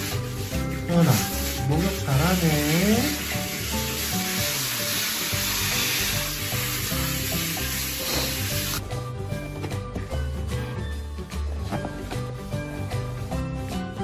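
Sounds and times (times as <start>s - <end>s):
shower spraying water on dog: 0.0s - 8.8s
background music: 0.0s - 14.0s.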